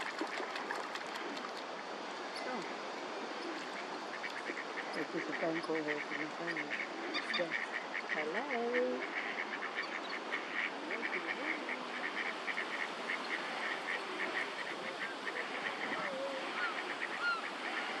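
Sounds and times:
background hiss: 0.0 - 18.0
lower sliding calls: 8.8 - 18.0.

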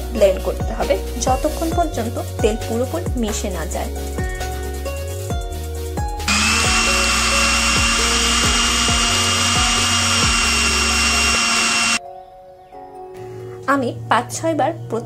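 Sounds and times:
blender motor whining: 6.3 - 12.0.

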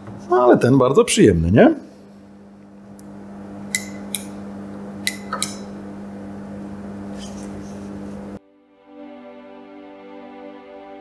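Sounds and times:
lamp switch clicks: 3.0 - 4.4, 5.0 - 5.7.

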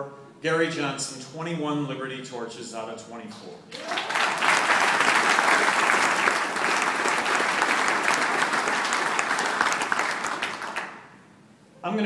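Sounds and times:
audience applauding: 3.7 - 11.1.

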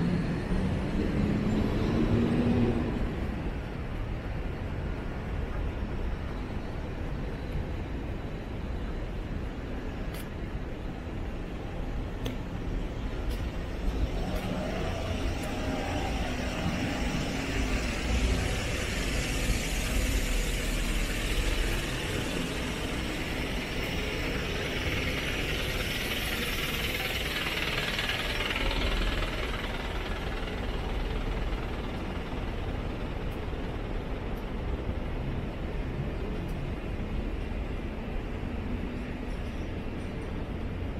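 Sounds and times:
vehicle passing by: 0.0 - 3.4, 13.6 - 31.4
vehicle traffic rumble: 0.0 - 40.9.

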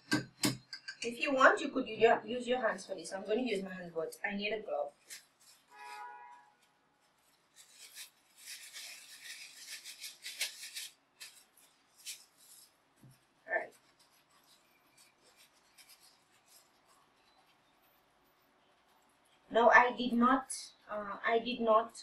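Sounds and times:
plastic glove crinkling: 4.6 - 19.5.

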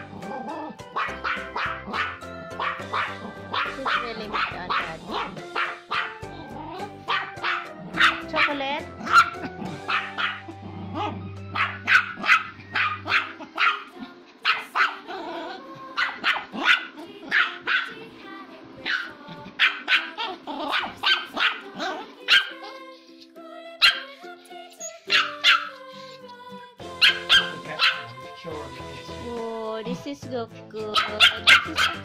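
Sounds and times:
background music with held notes: 0.0 - 32.0
small dog yapping: 7.1 - 8.2, 9.0 - 10.4, 11.0 - 15.1, 16.0 - 18.0, 18.8 - 22.7, 23.8 - 24.1, 25.0 - 25.8, 31.0 - 32.0.

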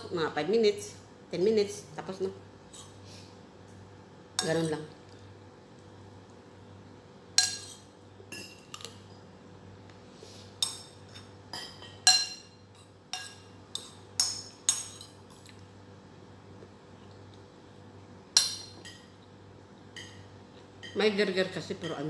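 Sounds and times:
metal spoon clinking against bowl: 7.4 - 8.9, 10.6 - 15.2.

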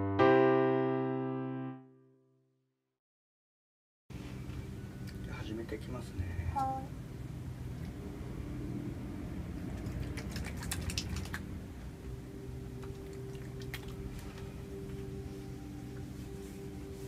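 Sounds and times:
quick clicks and smacks: 9.7 - 11.5.

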